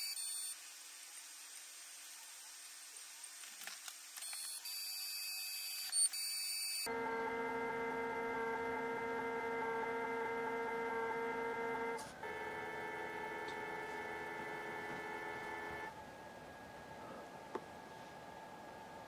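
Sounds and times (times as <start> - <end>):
stepper motors whining: 6.9 - 15.9.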